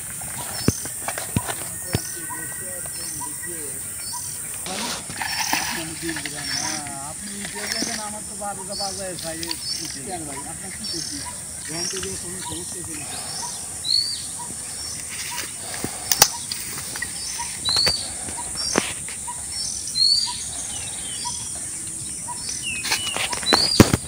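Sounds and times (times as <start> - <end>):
steady high hiss: 0.0 - 23.0
small birds chirping: 0.0 - 24.0
sharp clicks: 15.7 - 18.8.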